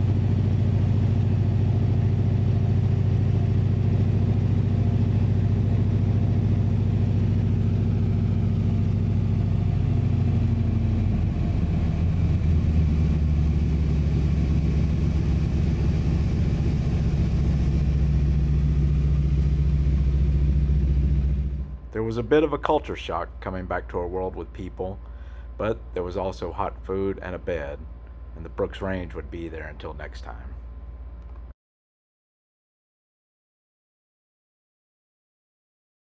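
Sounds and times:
plane engine and propeller droning: 0.0 - 27.8.

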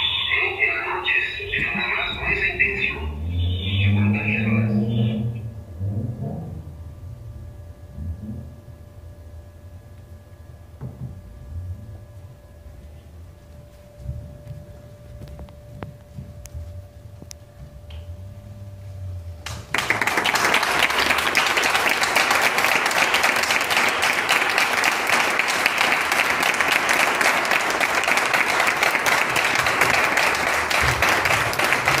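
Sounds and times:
low hum: 0.0 - 32.0
audience applause: 19.4 - 32.0.

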